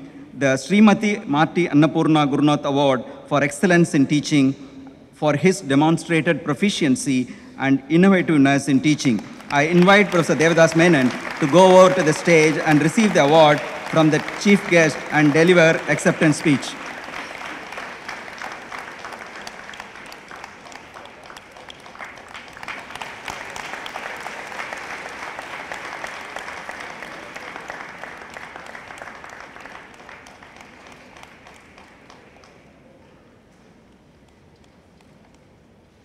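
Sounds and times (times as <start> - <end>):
audience applauding: 9.0 - 32.8.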